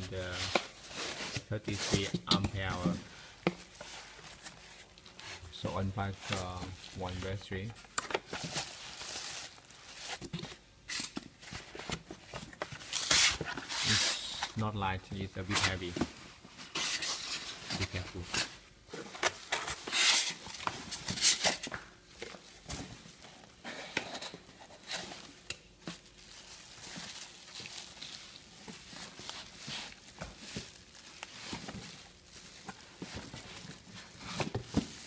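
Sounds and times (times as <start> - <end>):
plastic wrap crinkling: 0.0 - 10.7, 24.5 - 35.0.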